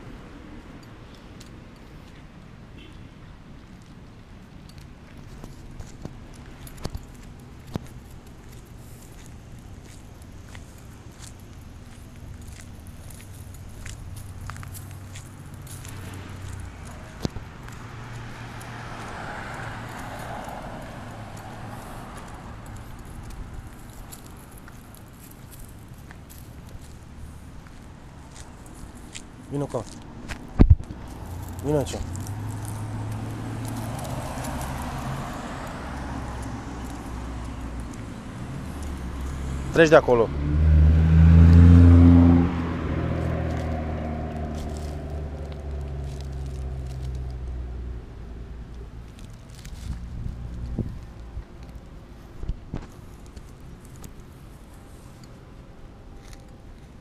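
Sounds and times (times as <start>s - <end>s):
footsteps on sidewalk: 0.0s - 57.0s
vehicle passing: 5.5s - 55.6s
car driving past: 14.9s - 23.1s, 31.0s - 48.0s
dry leaves rustling: 30.9s - 39.6s, 43.1s - 47.9s, 49.0s - 55.2s.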